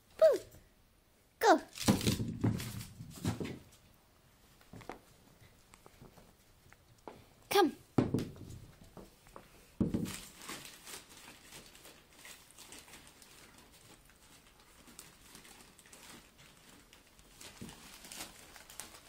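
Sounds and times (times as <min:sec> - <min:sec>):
thump on wooden floor: 0:01.8 - 0:03.6, 0:08.0 - 0:08.6
puppy clicks and rustles: 0:10.2 - 0:19.0.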